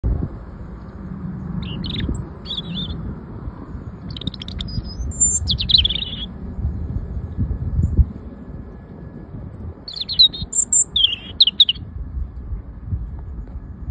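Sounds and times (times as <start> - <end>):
low rumble: 0.0 - 13.9
robin singing: 1.5 - 3.0, 3.7 - 6.4, 9.6 - 11.9.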